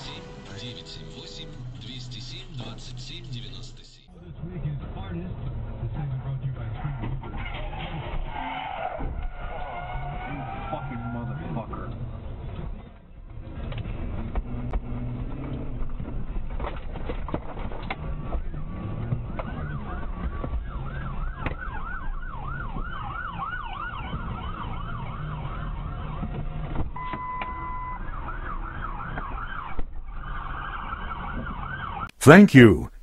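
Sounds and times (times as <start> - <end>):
police siren yelp: 19.5 - 26.1.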